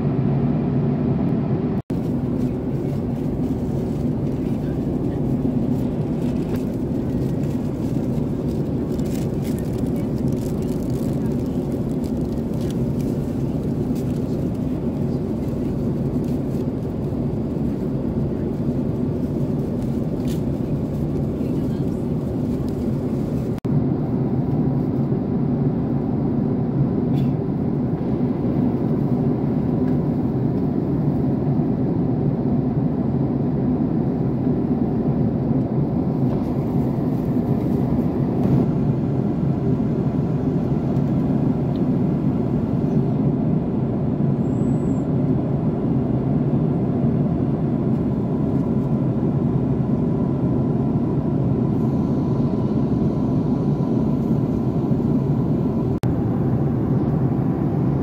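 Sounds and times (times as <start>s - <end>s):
airliner cabin roar: 0.0s - 58.0s.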